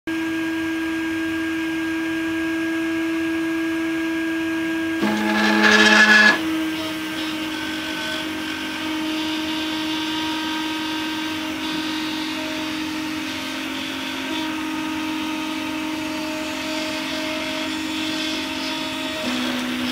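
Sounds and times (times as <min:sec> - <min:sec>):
stepper motors whining: 0:05.0 - 0:19.9.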